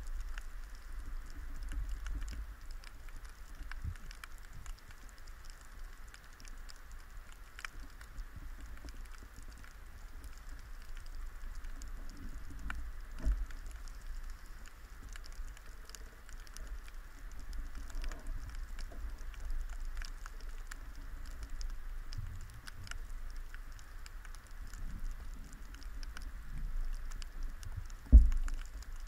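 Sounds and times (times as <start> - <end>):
crackle of faint underwater clicks: 0.0 - 29.0
low underwater rumble: 10.3 - 29.0.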